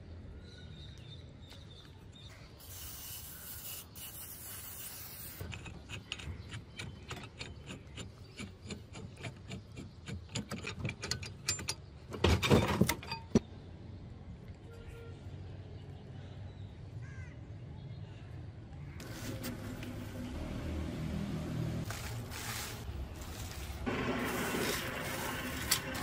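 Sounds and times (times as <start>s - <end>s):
spray can hissing: 2.6s - 5.4s
metallic clicks and grating scrapes: 4.2s - 13.4s.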